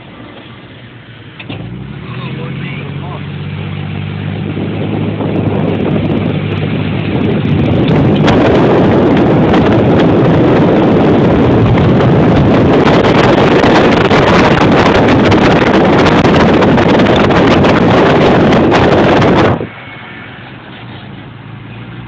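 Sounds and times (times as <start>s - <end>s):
low rumble: 1.4s - 19.8s
wind buffeting microphone: 3.6s - 19.8s.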